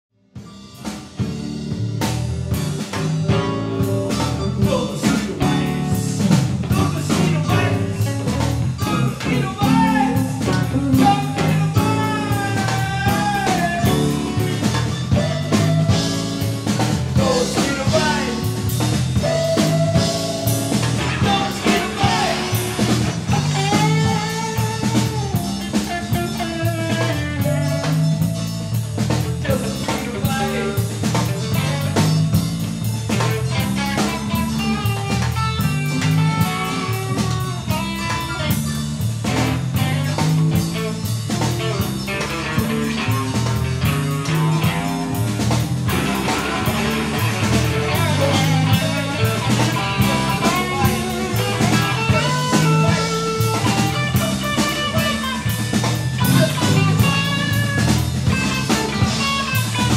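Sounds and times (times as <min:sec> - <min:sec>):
drum kit: 0:00.3 - 0:59.9
electric guitars: 0:00.4 - 0:59.9
man singing into a microphone: 0:03.3 - 0:16.1, 0:17.2 - 0:18.7, 0:21.0 - 0:25.4, 0:29.4 - 0:32.2, 0:45.9 - 0:55.2.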